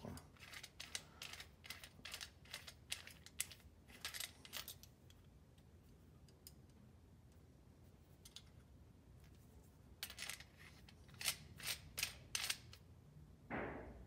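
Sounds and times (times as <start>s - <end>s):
clicks of torch parts handled: 8.2s - 8.6s.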